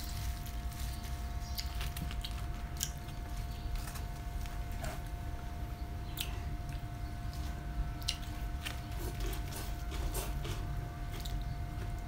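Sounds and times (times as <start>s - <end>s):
sharp crunches and clicks: 0.0s - 5.2s
chewing raw vegetables: 0.0s - 5.4s, 6.0s - 12.0s
steady low hum: 0.0s - 12.0s.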